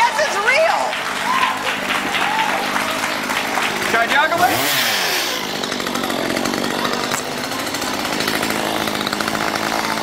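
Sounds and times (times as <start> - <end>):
chainsaw engine running: 0.0 - 10.0.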